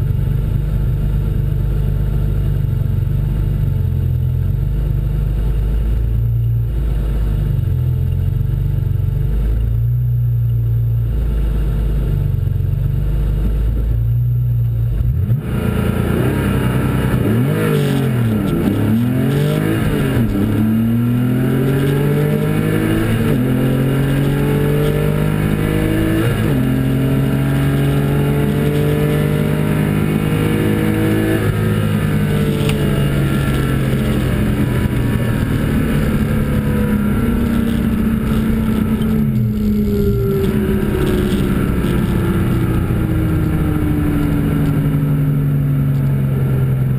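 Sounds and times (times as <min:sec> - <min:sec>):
car engine revving and accelerating: 0:14.9 - 0:46.9.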